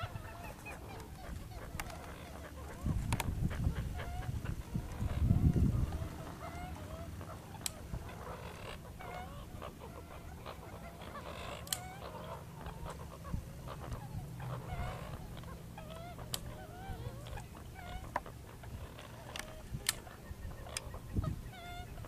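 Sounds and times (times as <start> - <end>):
birds chirping and warbling: 0.0 - 22.0
low steady hum: 0.0 - 22.0
sharp clicks: 19.8 - 20.0.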